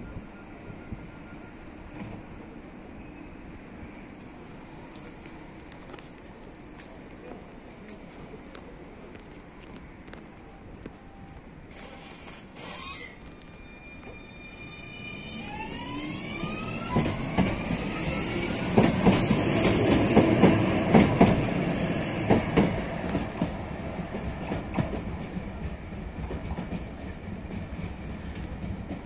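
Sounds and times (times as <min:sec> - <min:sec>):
tram electric motors whining: 0:08.5 - 0:29.0.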